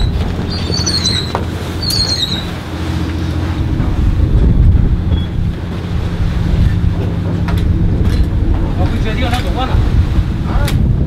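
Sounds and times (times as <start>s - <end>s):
rope block squeaking: 0.0s - 2.6s
ship rumble and hum: 0.0s - 11.0s
wind on microphone: 0.0s - 11.0s.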